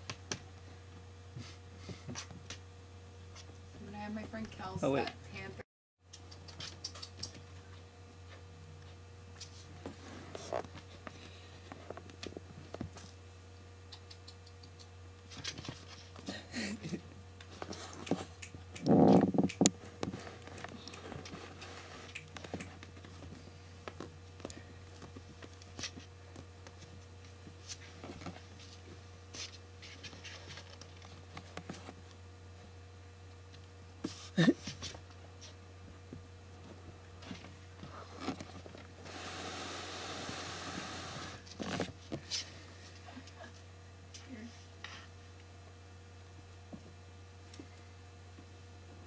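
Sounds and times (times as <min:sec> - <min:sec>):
low hum: 0:00.0 - 0:49.0
kittens scratching cardboard tube: 0:17.4 - 0:23.4.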